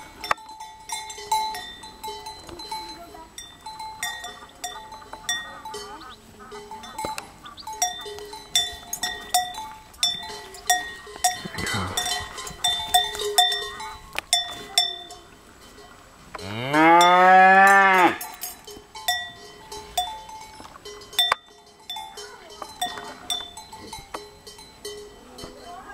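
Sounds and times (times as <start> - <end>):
cowbell clinking: 0.0 - 25.9
cow mooing: 11.4 - 12.3, 16.4 - 18.3.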